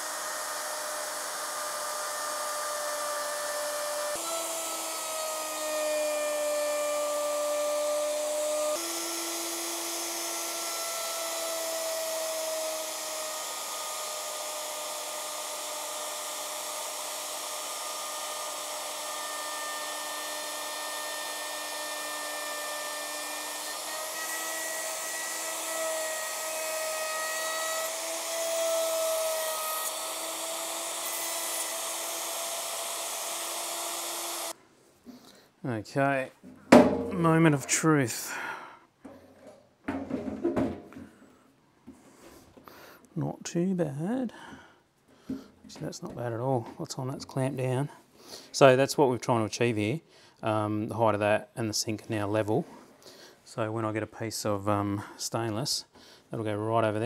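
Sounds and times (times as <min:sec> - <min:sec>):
electric router cutting wood: 0:00.0 - 0:34.6.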